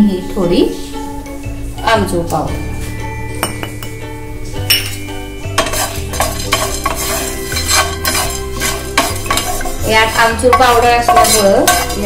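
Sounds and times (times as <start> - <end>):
spatula scraping spices in pan: 5.5 - 12.0.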